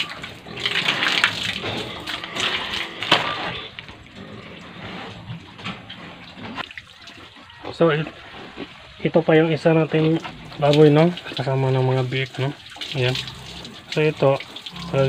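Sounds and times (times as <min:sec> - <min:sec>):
water splashing on concrete floor: 0:00.0 - 0:04.4, 0:10.0 - 0:15.0.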